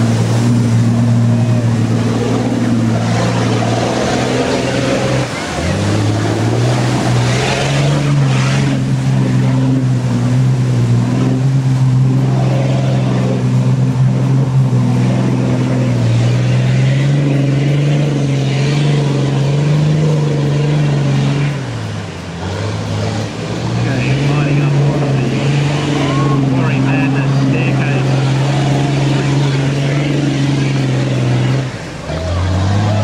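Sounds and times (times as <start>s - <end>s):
mud and water splashing: 0.0s - 33.0s
truck engine revving: 0.0s - 33.0s.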